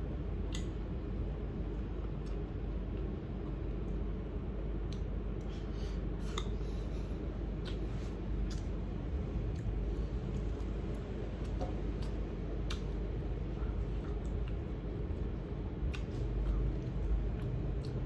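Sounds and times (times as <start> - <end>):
steady low hum: 0.0 - 18.0
person chewing food: 4.8 - 18.0.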